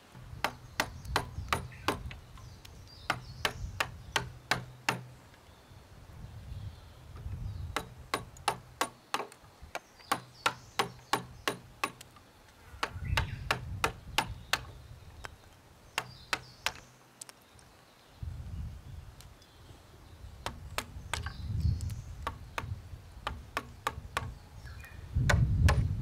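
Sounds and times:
chisel chopping into wood: 0.2s - 2.2s, 3.0s - 5.1s, 7.8s - 12.1s, 12.8s - 14.8s, 16.0s - 16.8s, 20.4s - 21.4s, 22.2s - 24.4s, 25.2s - 25.9s.

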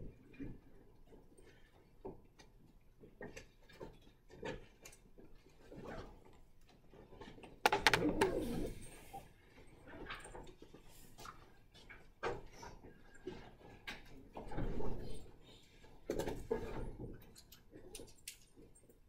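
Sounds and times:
clatter of sharp knocks: 7.6s - 8.3s.

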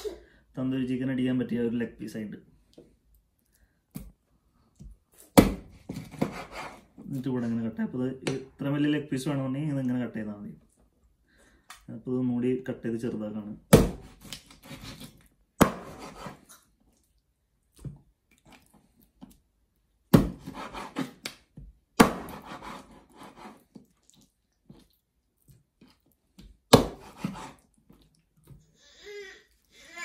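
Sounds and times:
knife chopping on wooden board: 5.4s - 6.8s, 13.7s - 15.0s, 15.6s - 16.4s, 20.1s - 21.4s, 22.0s - 23.6s, 26.7s - 27.6s
blade scraping on board: 14.5s - 16.5s, 20.4s - 21.2s, 22.1s - 23.6s, 26.8s - 27.6s.

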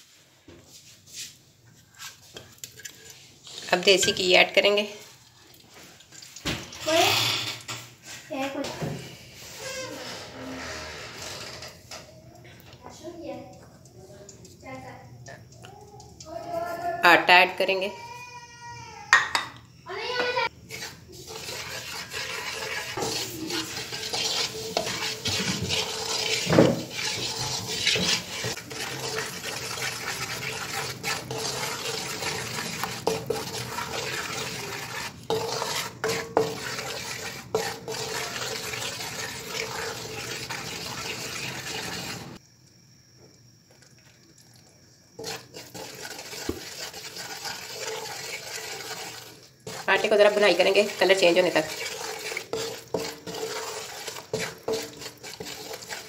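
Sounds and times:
spoon scraping metal pan: 2.0s - 4.9s, 20.1s - 42.4s, 45.2s - 56.0s.

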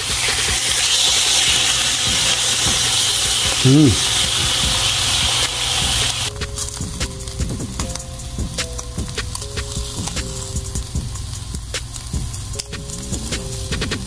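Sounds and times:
steaks sizzling on a grill: 0.0s - 14.0s
person humming mm: 3.6s - 4.2s.

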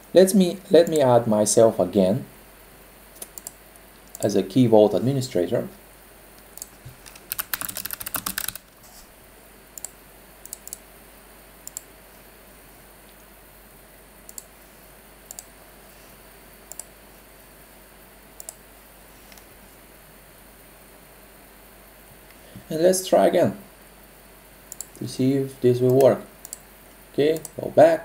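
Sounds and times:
mouse clicks: 3.2s - 4.3s, 9.8s - 10.8s, 11.6s - 11.9s, 14.3s - 14.5s, 15.3s - 15.5s, 16.7s - 16.9s, 18.4s - 18.6s, 24.7s - 25.0s, 25.9s - 26.6s
computer keyboard typing: 6.6s - 8.7s.

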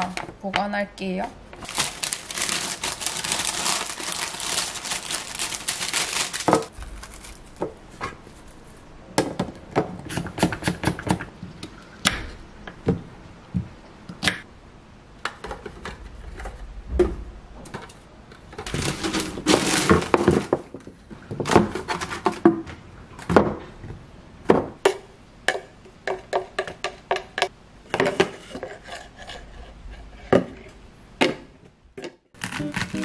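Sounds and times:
newspaper rustling: 1.6s - 8.8s, 18.7s - 20.6s, 32.4s - 33.0s.

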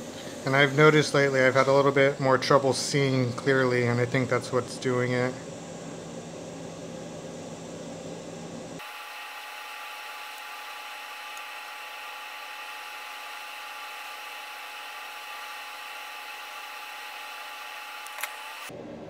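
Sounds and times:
hot air blower hiss and whine: 0.0s - 19.0s
small click: 18.0s - 18.5s.

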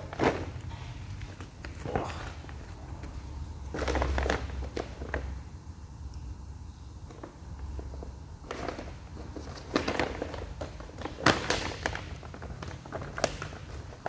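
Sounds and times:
plastic bag crinkling: 3.7s - 5.3s, 8.4s - 14.0s.

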